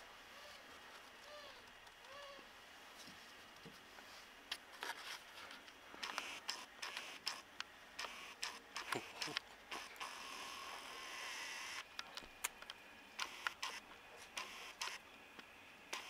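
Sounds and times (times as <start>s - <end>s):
light clicks and scrapes: 2.9s - 7.4s.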